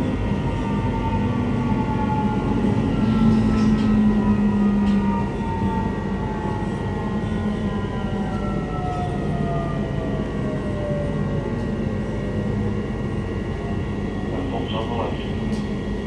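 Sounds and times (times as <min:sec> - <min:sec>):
train running noise: 0:00.0 - 0:16.0.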